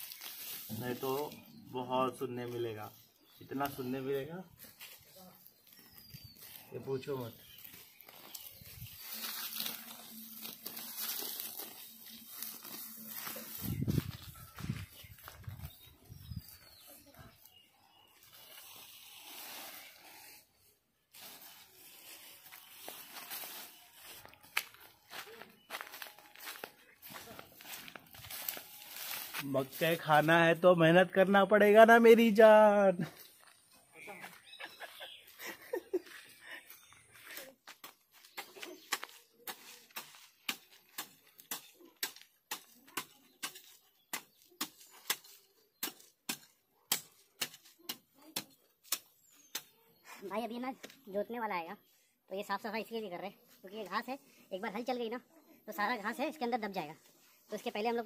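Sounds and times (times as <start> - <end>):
grass being torn up: 0.0 - 1.4, 7.6 - 14.4, 18.2 - 20.4, 25.7 - 29.9
weeds snapping and crackling: 0.0 - 1.4, 7.5 - 15.4, 21.2 - 29.9.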